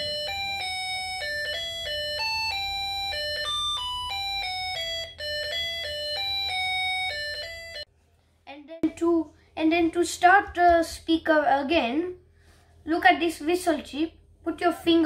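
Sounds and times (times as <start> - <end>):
electronic beeping melody: 0.0 - 7.9.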